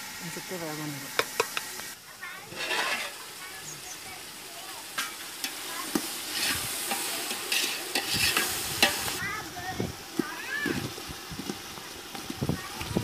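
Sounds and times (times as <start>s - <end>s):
gravy sizzling: 0.0s - 13.0s
metal ladle knocking on pot: 1.2s - 1.7s
ladle scraping pot: 2.5s - 3.2s, 5.0s - 9.2s.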